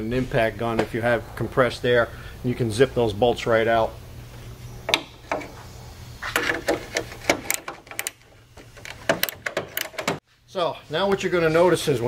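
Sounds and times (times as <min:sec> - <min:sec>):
low steady hum: 0:00.0 - 0:12.0
bumper being handled: 0:04.9 - 0:10.2
wrench clicking on metal bolt: 0:06.3 - 0:10.2.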